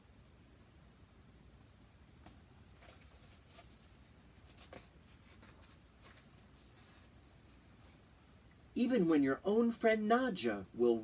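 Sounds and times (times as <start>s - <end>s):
book pages rustling: 2.2s - 8.1s.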